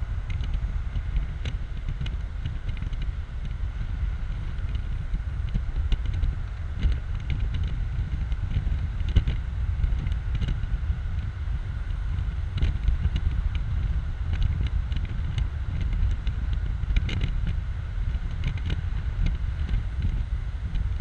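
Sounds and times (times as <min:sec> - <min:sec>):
car road and engine noise: 0:00.0 - 0:21.0
wind buffeting microphone: 0:00.0 - 0:21.0.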